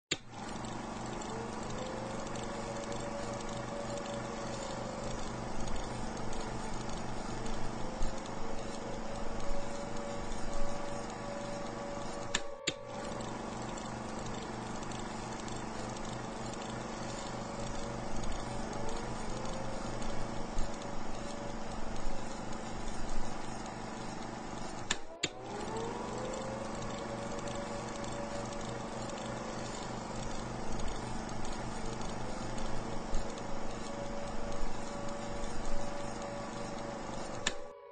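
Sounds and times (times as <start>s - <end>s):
piston aircraft engines droning: 24.6s - 37.9s.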